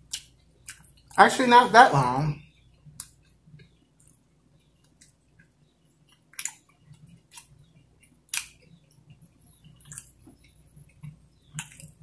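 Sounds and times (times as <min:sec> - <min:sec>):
person chewing food: 0:00.0 - 0:01.2, 0:02.4 - 0:12.0
wet mouth clicks and smacks: 0:04.8 - 0:07.6.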